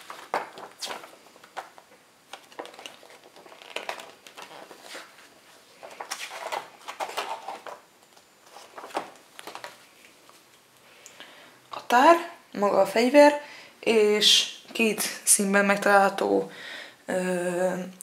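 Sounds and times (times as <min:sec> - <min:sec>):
paper pages rustling and flapping: 0:00.0 - 0:10.6.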